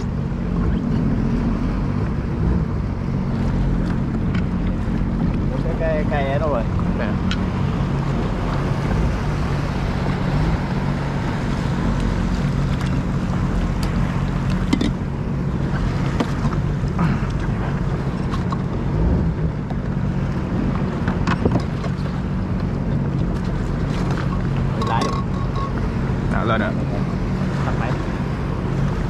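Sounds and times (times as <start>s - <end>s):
jet ski engine running: 0.0s - 29.0s
wind on microphone: 0.0s - 29.0s.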